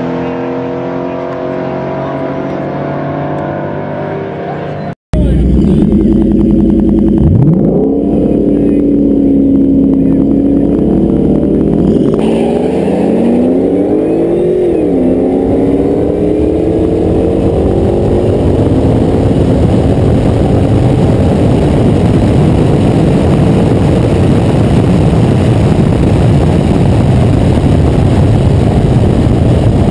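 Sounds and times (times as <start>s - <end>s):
car engine at full throttle: 0.0s - 29.9s
wind rushing on microphone: 8.4s - 29.9s.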